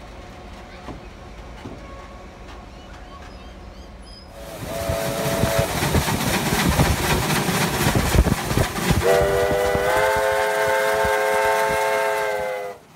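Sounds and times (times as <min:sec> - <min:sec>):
steam locomotive chuffing: 0:00.0 - 0:12.9
steam whistle blast: 0:04.4 - 0:05.7, 0:09.0 - 0:12.8.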